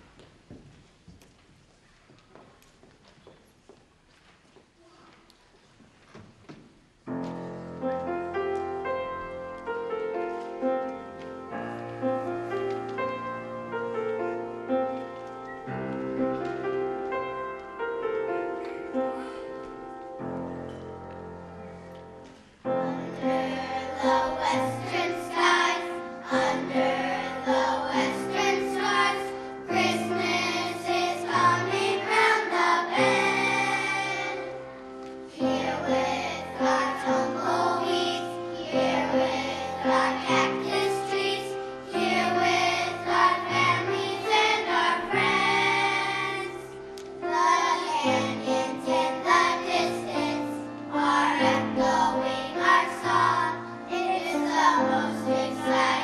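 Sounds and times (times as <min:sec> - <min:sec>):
children singing: 0:22.7 - 0:56.0.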